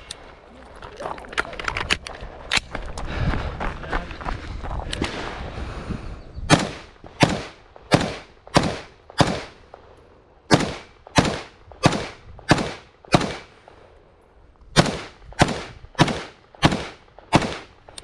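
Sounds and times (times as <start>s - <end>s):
rifle shots with echo: 6.5s - 13.8s, 14.7s - 18.0s.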